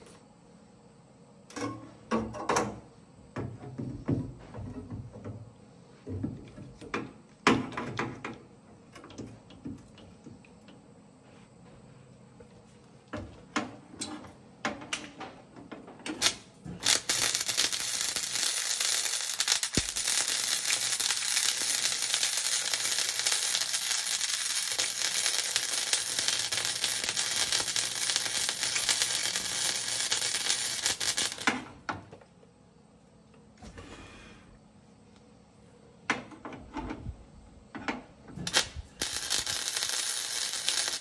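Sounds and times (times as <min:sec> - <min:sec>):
arc welding crackling: 0:16.1 - 0:31.6, 0:38.4 - 0:41.0.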